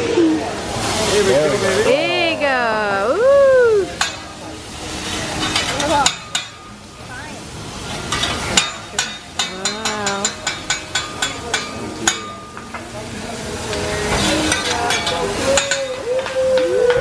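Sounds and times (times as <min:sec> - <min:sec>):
metal spatulas tapping a griddle: 0:04.0 - 0:04.3, 0:05.4 - 0:06.7, 0:08.1 - 0:12.9, 0:14.1 - 0:17.0.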